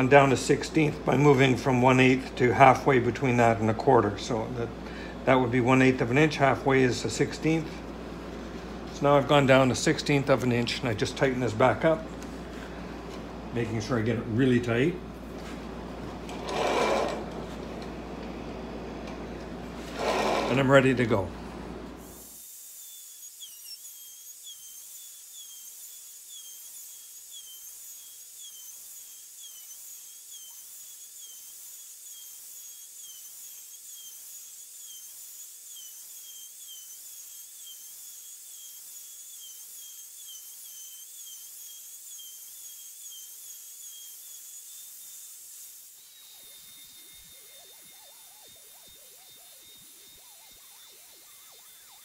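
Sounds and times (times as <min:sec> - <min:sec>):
router high whine: 0:16.0 - 0:21.4, 0:22.0 - 0:52.0.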